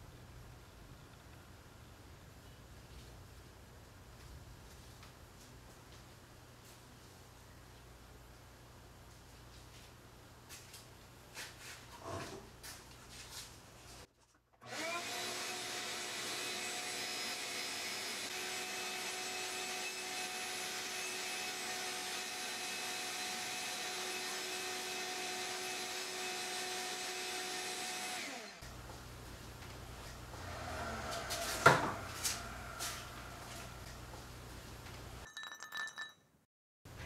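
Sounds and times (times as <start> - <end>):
shop vacuum running: 14.6 - 34.4.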